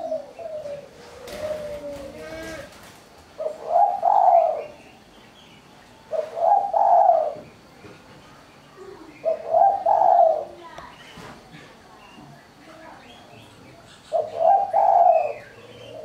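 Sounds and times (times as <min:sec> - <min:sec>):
dove cooing: 0:00.0 - 0:04.8, 0:06.1 - 0:07.7, 0:08.8 - 0:10.7, 0:14.0 - 0:16.0.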